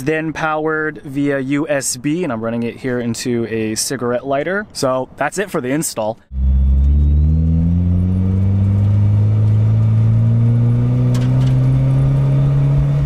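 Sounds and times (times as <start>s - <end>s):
car engine accelerating: 6.3s - 13.0s.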